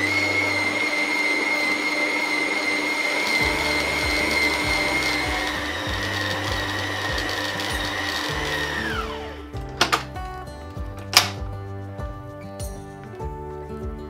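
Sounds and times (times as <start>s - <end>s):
stand mixer motor whining: 0.0s - 10.1s.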